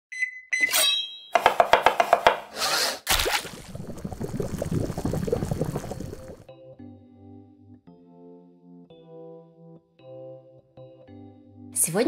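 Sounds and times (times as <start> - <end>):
sharp knocks: 1.4 - 2.5.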